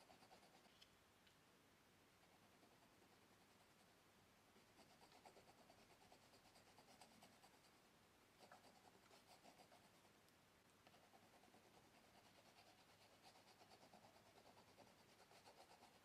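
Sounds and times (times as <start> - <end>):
pastel scratching on paper: 0.0 - 0.7, 4.7 - 7.8, 8.4 - 10.1, 10.9 - 16.0.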